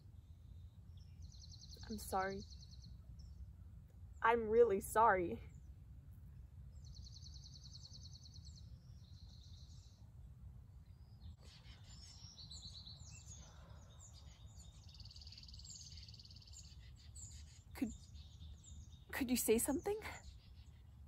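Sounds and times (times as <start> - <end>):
low steady rumble: 0.0 - 11.4
bird trills: 11.4 - 21.0.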